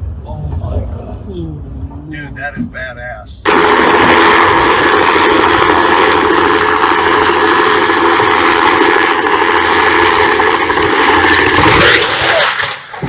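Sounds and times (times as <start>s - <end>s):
helicopter hovering: 3.5s - 13.0s.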